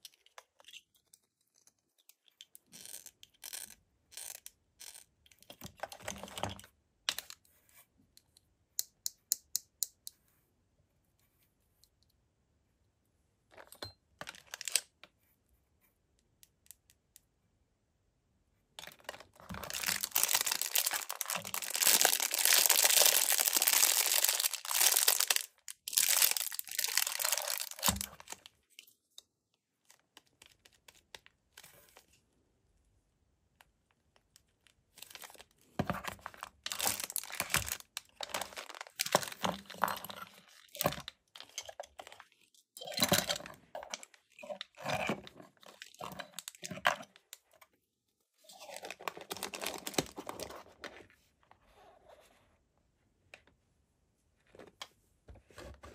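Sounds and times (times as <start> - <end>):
plastic bags crinkling: 18.9 - 28.5, 36.1 - 42.2, 48.5 - 50.5.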